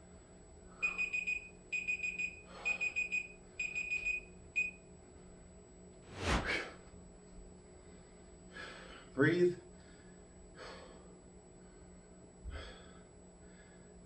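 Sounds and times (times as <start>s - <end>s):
short whoosh: 6.1s - 6.8s.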